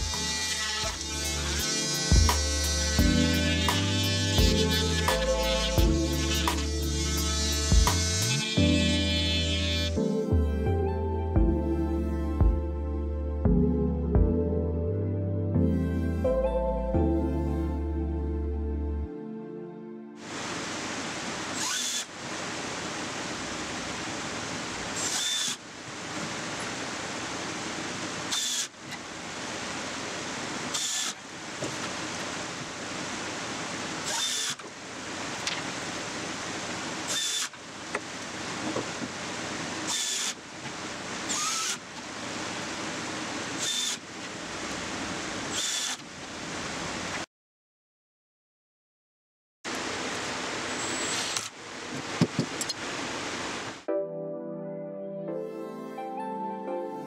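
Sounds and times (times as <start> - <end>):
cordless drill driving screws: 0.0 - 9.9, 21.6 - 22.1, 25.0 - 25.6, 28.3 - 28.7, 30.7 - 31.2, 34.0 - 34.6, 37.1 - 37.6, 39.9 - 40.4, 41.3 - 41.8, 43.6 - 44.0, 45.5 - 46.0, 50.7 - 51.6
steady hiss: 20.2 - 47.2.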